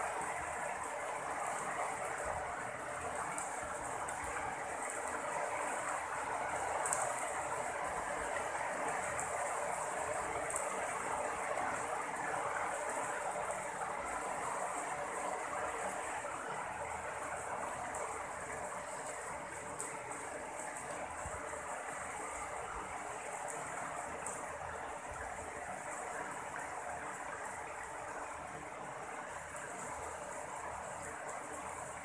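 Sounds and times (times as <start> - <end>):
steady rain falling: 0.0 - 32.0.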